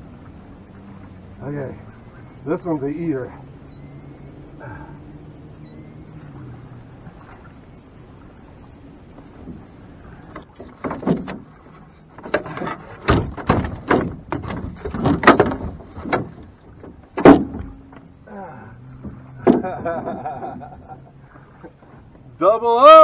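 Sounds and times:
thumps and knocks on boat hull: 10.3 - 18.1, 19.0 - 20.1.

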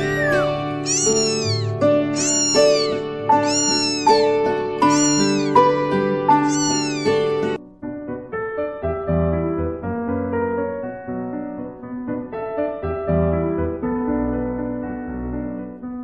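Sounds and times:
kitten mewing: 0.0 - 5.6, 6.3 - 7.3.

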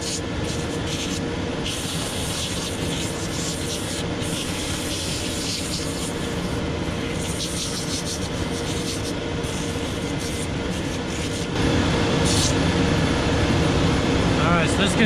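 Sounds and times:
sole grinding on sanding wheel: 0.0 - 11.6
machine motor whirring: 0.0 - 13.6.

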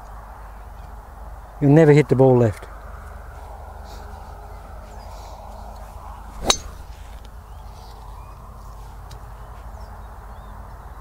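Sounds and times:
golf driver striking ball: 6.4 - 6.9.

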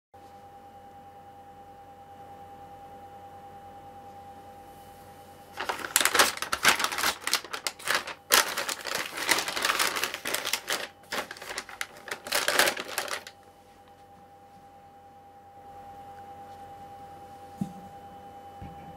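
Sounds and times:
plastic snack bag crinkling: 5.6 - 13.4.

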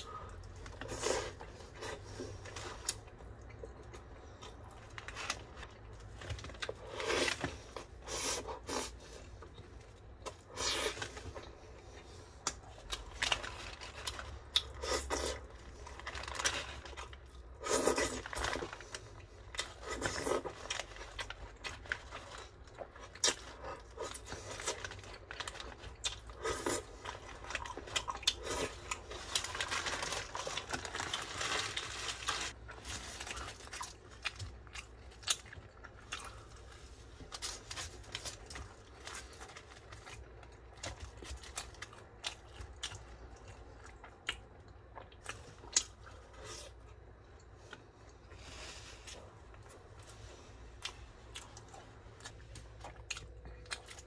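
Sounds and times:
chewing: 8.4 - 48.4, 49.0 - 54.0
paper wrapper crinkling: 15.8 - 17.2, 24.3 - 34.5.

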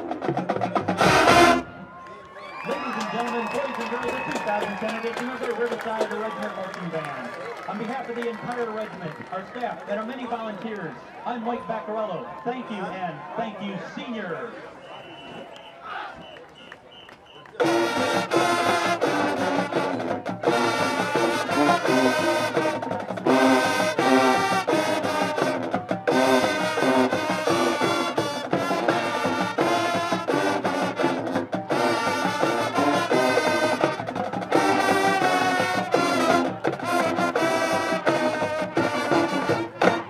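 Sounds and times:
marching band brass chords: 0.0 - 2.0, 17.3 - 40.0
drumline percussion: 0.0 - 10.6, 17.1 - 40.0.

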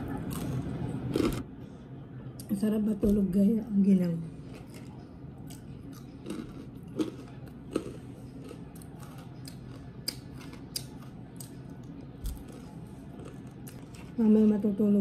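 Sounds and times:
low room hum: 0.0 - 15.0
person chewing food: 0.1 - 1.4, 4.4 - 14.2.

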